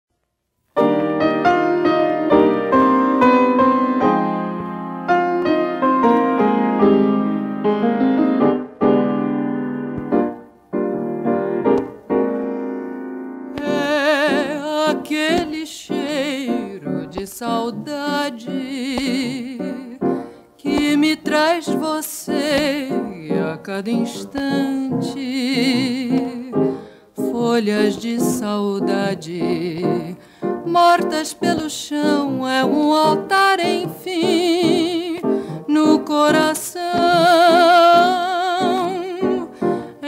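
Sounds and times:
solo piano: 0:00.8 - 0:40.0
woman singing with vibrato: 0:13.6 - 0:40.0.

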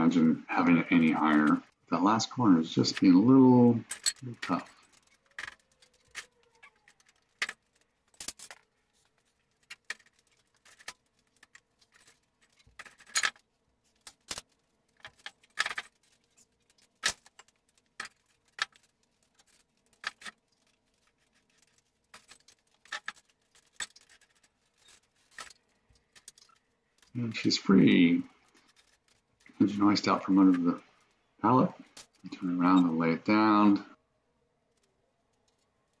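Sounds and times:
sharp clicks clinks and knocks: 0:03.8 - 0:06.3.

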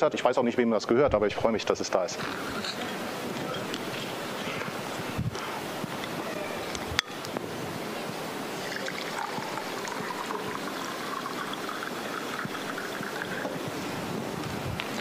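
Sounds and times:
water pouring into a glass: 0:08.6 - 0:13.7.

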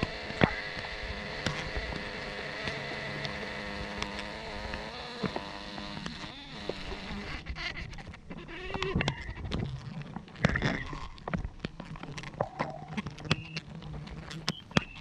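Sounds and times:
sharp clicks of comb cutting: 0:00.0 - 0:07.2
bees buzzing: 0:00.0 - 0:07.6.

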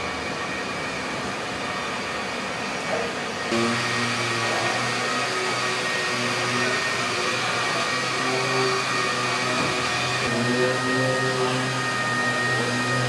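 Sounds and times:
machinery whirring and hum: 0:00.0 - 0:04.4.

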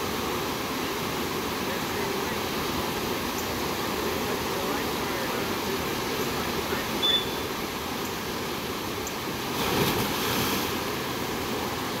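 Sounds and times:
short high squeak: 0:07.0 - 0:07.5
water rushing down rock slide: 0:09.4 - 0:12.0
splash into pool: 0:09.5 - 0:10.8.

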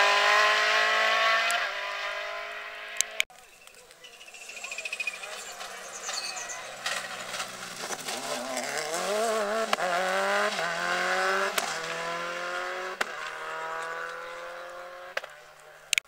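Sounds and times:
rally car engine accelerating: 0:00.0 - 0:03.2, 0:04.9 - 0:16.0
gear change crack: 0:04.9 - 0:12.2, 0:12.9 - 0:15.4.

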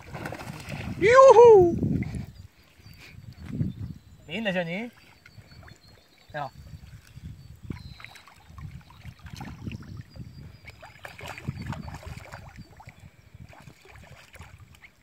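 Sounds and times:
wind on microphone: 0:00.0 - 0:04.5, 0:05.1 - 0:15.0.

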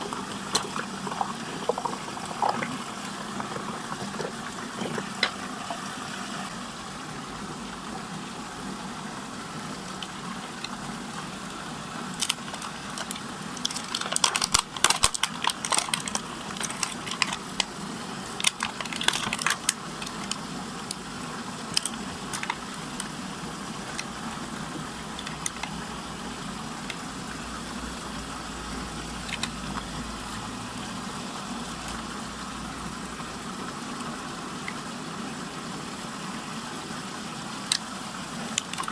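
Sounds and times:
plastic toys clicking and rattling: 0:00.0 - 0:05.4, 0:12.1 - 0:21.0, 0:21.6 - 0:23.2, 0:23.8 - 0:24.3, 0:25.2 - 0:25.8, 0:29.2 - 0:29.6, 0:37.7 - 0:38.9
water whirlpool rushing and humming: 0:00.0 - 0:38.9.

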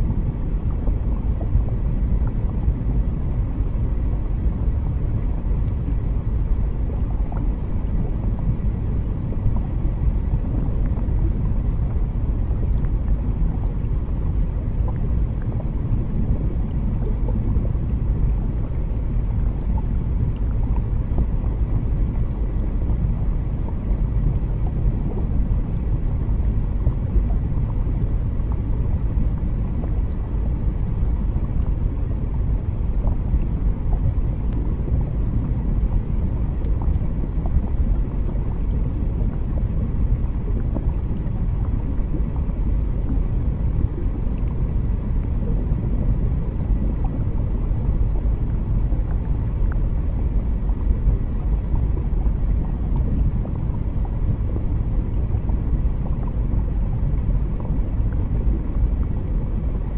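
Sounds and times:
deep underwater rumble: 0:00.0 - 0:59.9.

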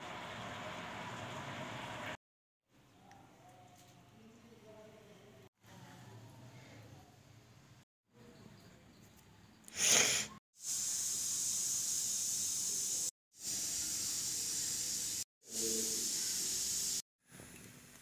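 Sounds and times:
steady hissing: 0:09.8 - 0:17.0.

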